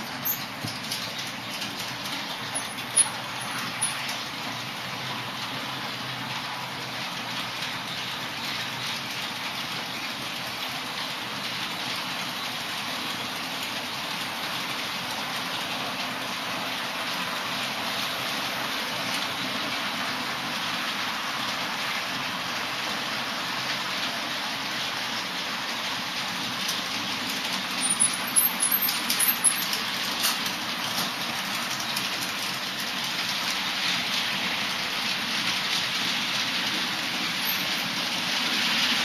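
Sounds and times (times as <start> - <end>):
model train wheels rattling: 0.0 - 4.8, 26.2 - 39.0.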